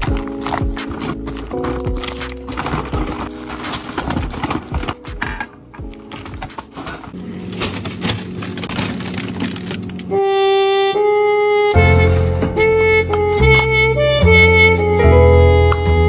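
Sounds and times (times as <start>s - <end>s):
plastic bags crinkling: 0.0s - 5.2s, 5.8s - 10.2s
music with horn-like notes: 9.6s - 16.0s.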